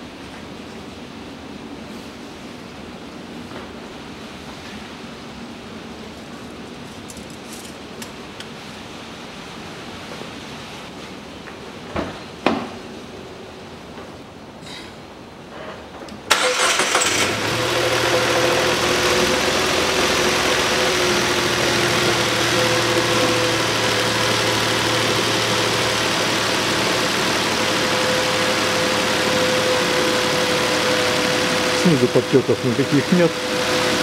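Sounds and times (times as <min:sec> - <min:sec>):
car engine starting and idling: 0:16.3 - 0:34.0.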